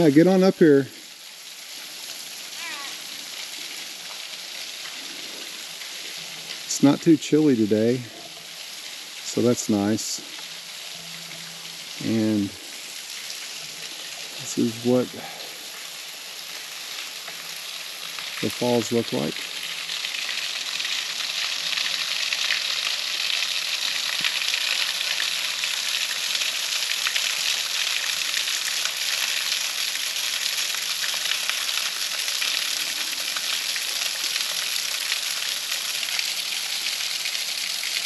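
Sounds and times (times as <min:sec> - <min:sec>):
waterfall splashing onto rock: 0:07.8 - 0:38.0.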